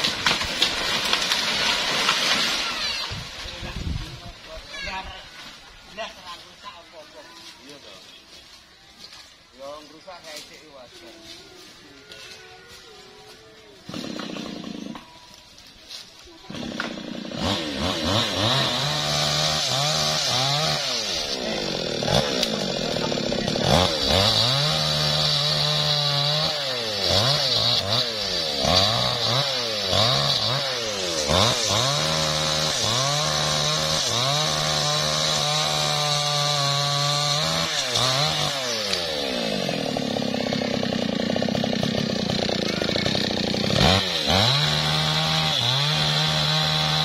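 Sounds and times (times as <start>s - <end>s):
chainsaw revving while cutting: 13.9s - 15.0s, 16.5s - 47.0s.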